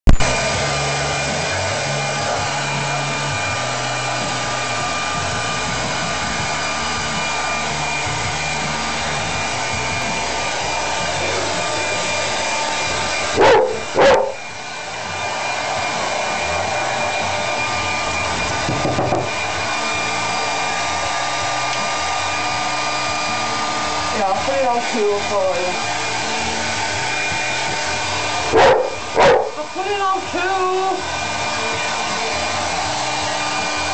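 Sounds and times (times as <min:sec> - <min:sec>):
hairdryer whine: 0:00.0 - 0:33.9
dog barking: 0:13.4 - 0:14.4, 0:28.5 - 0:29.6.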